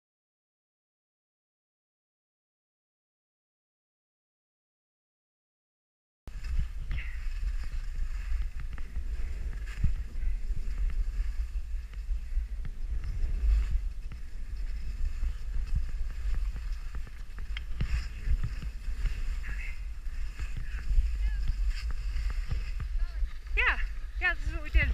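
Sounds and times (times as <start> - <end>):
wind buffeting microphone: 6.3 - 24.9.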